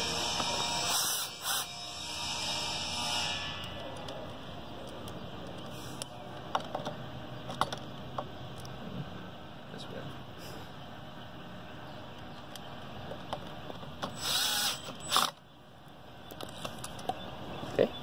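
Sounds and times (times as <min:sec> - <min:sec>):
cordless drill driving screw: 0:00.9 - 0:01.7, 0:14.1 - 0:15.4.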